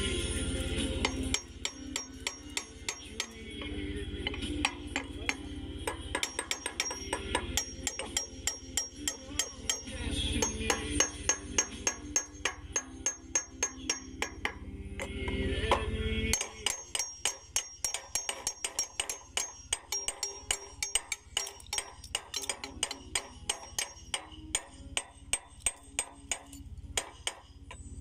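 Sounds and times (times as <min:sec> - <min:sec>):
hammer striking steel: 0:00.0 - 0:28.0
low steady hum: 0:00.0 - 0:28.0.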